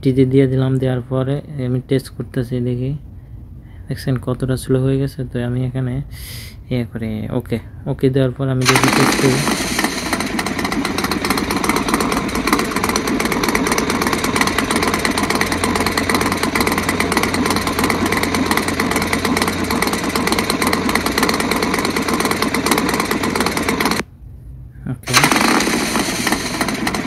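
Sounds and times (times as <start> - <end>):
motorcycle engine running: 8.6 - 24.1, 25.1 - 27.0.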